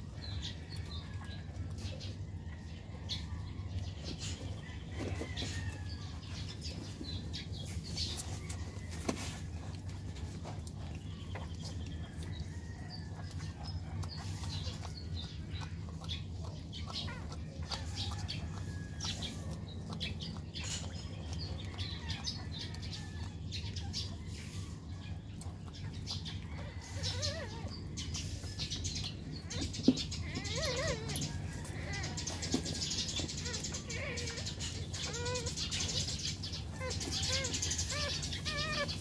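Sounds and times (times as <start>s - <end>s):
puppies squeaking: 13.2s - 24.2s, 24.9s - 39.0s
puppy whimpering: 26.4s - 28.0s, 29.4s - 39.0s.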